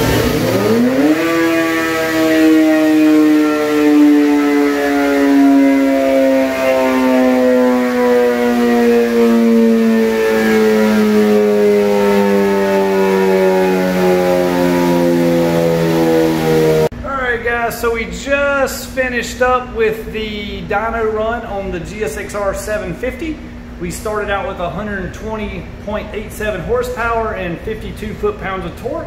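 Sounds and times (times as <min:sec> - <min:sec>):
motorcycle engine winding down: 0:00.0 - 0:16.9.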